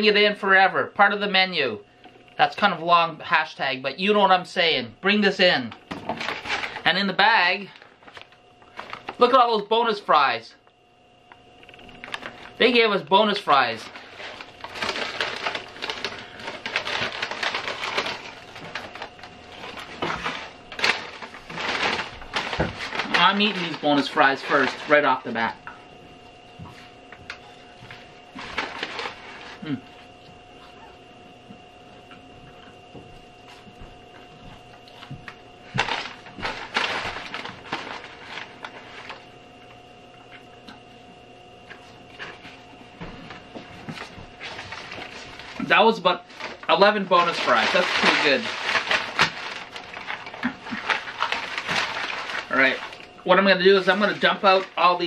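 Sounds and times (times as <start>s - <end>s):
paper bag rustling: 5.9s - 9.6s, 11.9s - 25.6s, 27.7s - 29.8s, 35.6s - 39.3s, 43.2s - 55.0s.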